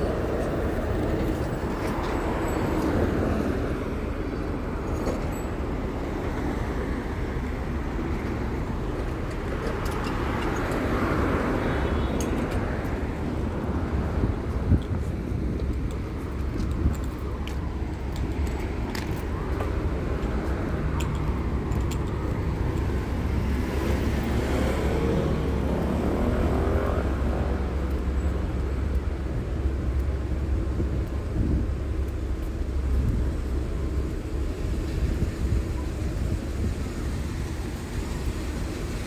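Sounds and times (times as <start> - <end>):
road traffic rumble: 0.0 - 39.0
vehicle passing: 22.2 - 28.2.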